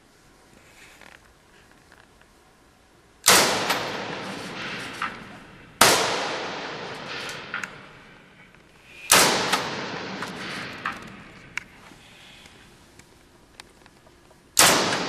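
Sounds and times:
rifle shots ringing in a tunnel: 0:03.2 - 0:12.7, 0:14.5 - 0:15.0
faint sharp cracks: 0:03.2 - 0:15.0.

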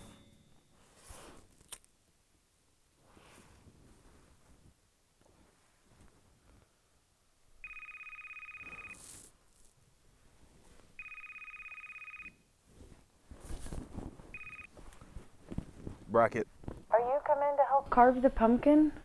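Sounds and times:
phone ringing electronic trill: 0:07.6 - 0:09.0, 0:11.0 - 0:12.4, 0:14.4 - 0:14.7.

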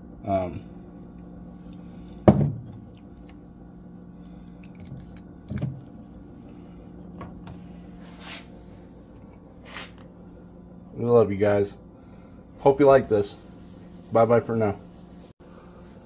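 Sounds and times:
steady low hum: 0:00.0 - 0:16.0
dull knock: 0:02.3 - 0:02.7.

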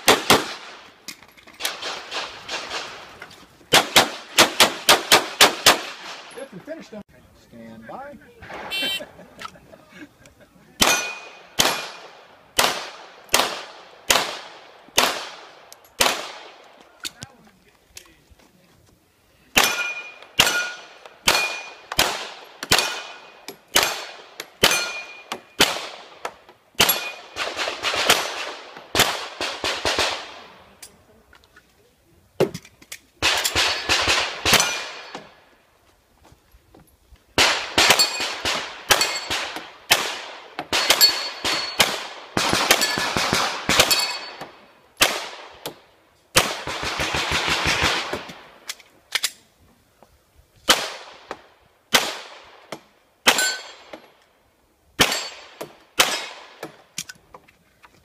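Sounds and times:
handgun shots echoing: 0:10.8 - 0:12.0, 0:19.6 - 0:25.9, 0:37.4 - 0:44.4, 0:55.0 - 0:56.6.

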